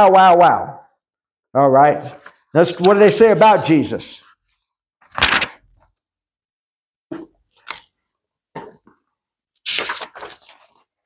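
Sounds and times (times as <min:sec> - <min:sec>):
book pages turning: 0:05.0 - 0:06.0, 0:07.2 - 0:09.0, 0:09.6 - 0:11.0.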